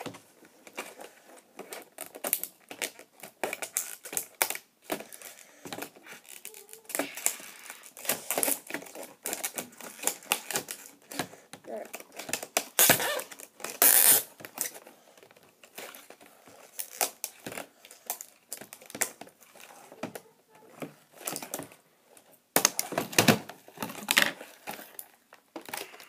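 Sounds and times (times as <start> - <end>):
plastic packaging crinkling: 0.6 - 19.9.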